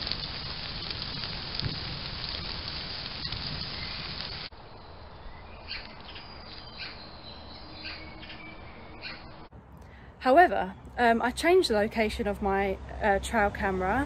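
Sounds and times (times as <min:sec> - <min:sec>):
rustles in leaf litter: 0:00.0 - 0:04.5
birds chirping: 0:03.6 - 0:11.7.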